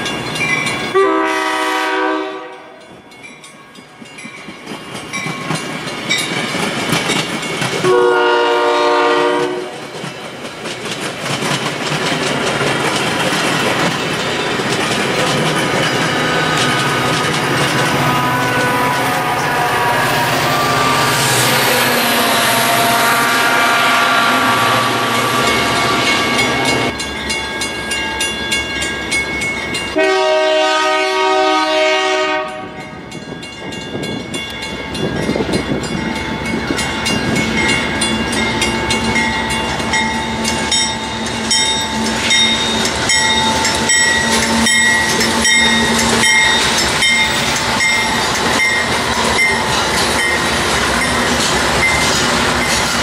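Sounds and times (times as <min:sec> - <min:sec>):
diesel locomotive engine: 0:00.0 - 0:53.0
train horn: 0:00.9 - 0:02.8, 0:07.8 - 0:09.9, 0:16.4 - 0:26.9, 0:29.9 - 0:33.0.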